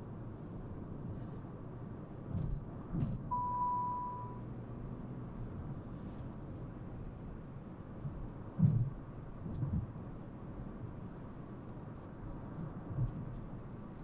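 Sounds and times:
car cabin road and engine noise: 0:00.0 - 0:14.0
electronic beep: 0:03.3 - 0:04.4.

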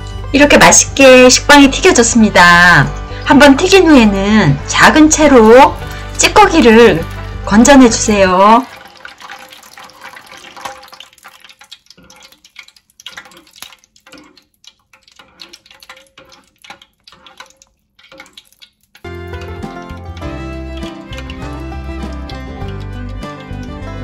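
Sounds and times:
skimmer swept through frying oil: 0:05.1 - 0:24.0
oil dripping and splashing: 0:05.2 - 0:24.0.

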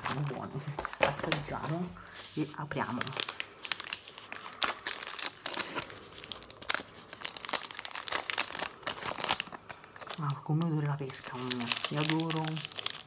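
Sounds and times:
wrapper crinkling and tearing: 0:00.0 - 0:13.0.

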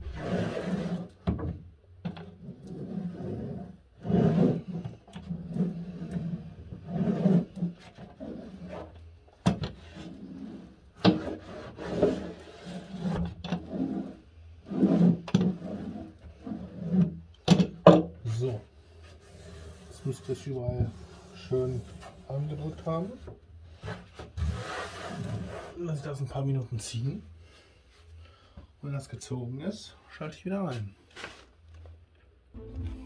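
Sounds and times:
hand roller rolling over cork: 0:02.5 - 0:09.1, 0:09.8 - 0:17.2.

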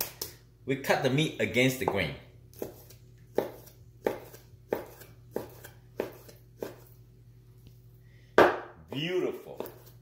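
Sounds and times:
cleaver chopping on wooden board: 0:02.6 - 0:06.8, 0:08.4 - 0:08.8.

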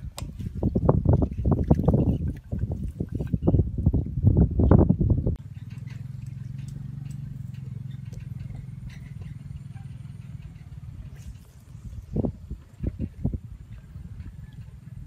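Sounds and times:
low engine drone: 0:05.3 - 0:15.0.

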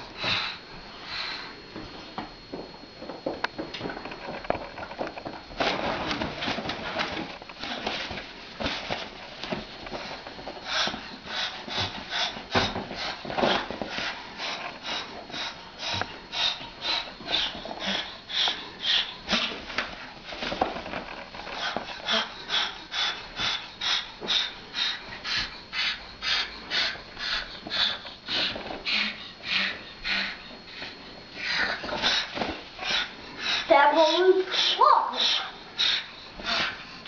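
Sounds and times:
cockatoo hissing: 0:31.4 - 0:36.8.

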